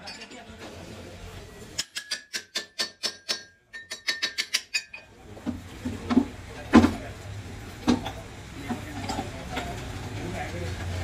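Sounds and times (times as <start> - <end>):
sharp metallic taps on hub: 1.8 - 5.0.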